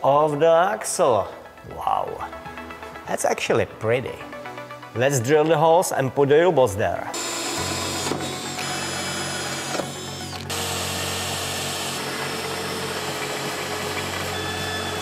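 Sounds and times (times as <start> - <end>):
cordless drill running: 7.2 - 15.0
magnetic drill cutting steel: 7.2 - 15.0.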